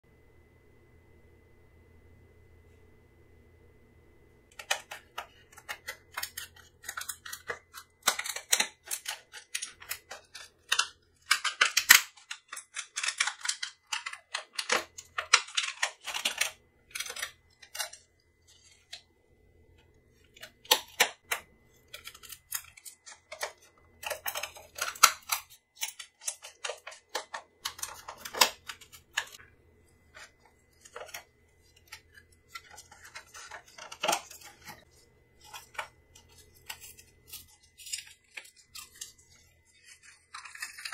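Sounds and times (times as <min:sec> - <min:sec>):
plastic packaging crackling: 0:04.5 - 0:19.0, 0:19.7 - 0:40.9.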